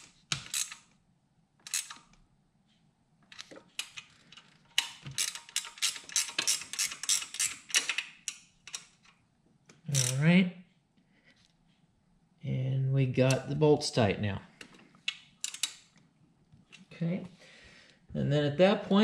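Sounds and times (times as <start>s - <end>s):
ratcheting wrench clicking: 0.0s - 0.9s, 1.7s - 2.1s, 3.4s - 9.1s, 9.9s - 10.2s, 15.1s - 15.9s.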